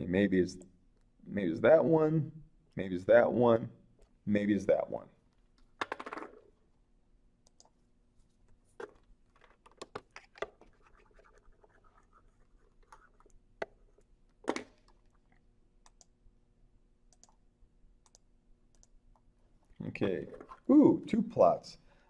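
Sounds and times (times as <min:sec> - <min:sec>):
faint steady hum: 0:00.0 - 0:22.0
computer mouse clicks and taps: 0:07.4 - 0:07.7, 0:08.8 - 0:12.1, 0:12.8 - 0:16.1, 0:17.1 - 0:17.4, 0:18.0 - 0:19.2.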